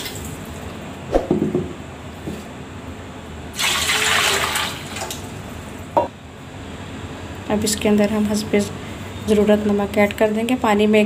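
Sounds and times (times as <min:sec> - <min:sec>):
short knock: 0:01.1 - 0:01.8
water pouring into metal pot: 0:03.6 - 0:05.0.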